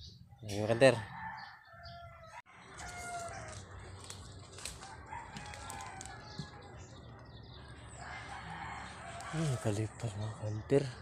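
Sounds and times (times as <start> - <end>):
rooster crowing: 0.7 - 3.7, 4.8 - 6.7, 8.0 - 10.0.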